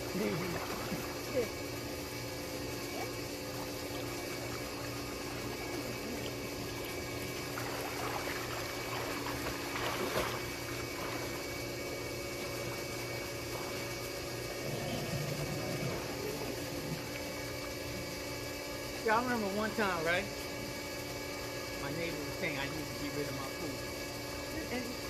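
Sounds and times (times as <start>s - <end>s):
machine hum: 0.0s - 25.0s
water sloshing and splashing: 3.1s - 17.9s.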